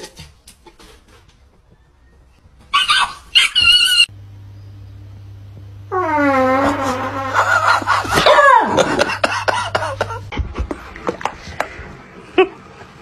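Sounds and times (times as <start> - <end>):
puppy whining and yelping: 2.7 - 4.1.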